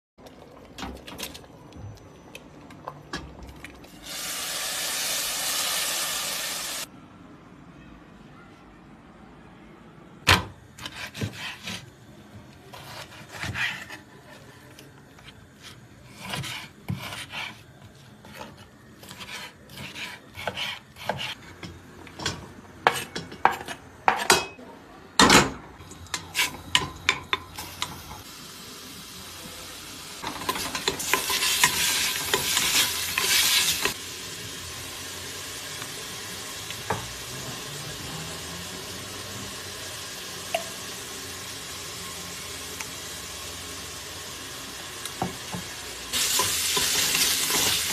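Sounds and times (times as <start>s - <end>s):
meat sizzling in hot oil: 4.0s - 6.9s, 30.1s - 47.9s.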